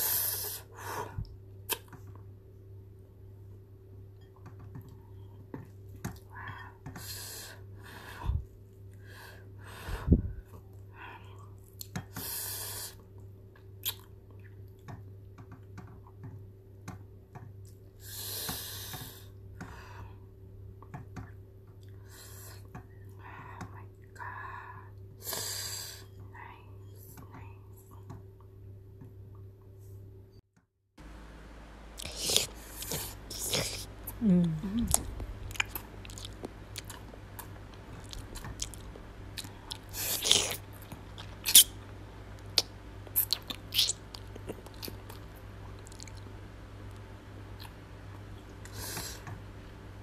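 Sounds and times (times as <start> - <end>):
chewing and wet mouth sounds: 13.0 - 14.9, 32.0 - 46.3, 46.9 - 49.3.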